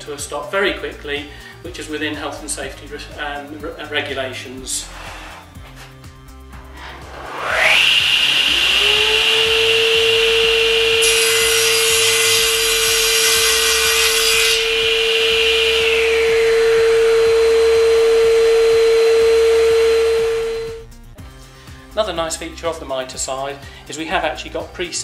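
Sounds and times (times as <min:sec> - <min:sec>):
saw blade cutting wood: 0:04.8 - 0:05.6, 0:06.7 - 0:17.7
steady low motor hum: 0:04.8 - 0:21.1
table saw motor whining: 0:06.7 - 0:20.8.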